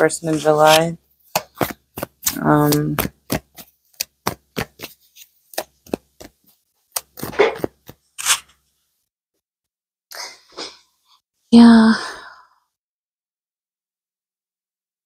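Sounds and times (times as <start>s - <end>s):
card rustle: 0.2s - 8.5s
cards being shuffled: 0.2s - 8.5s.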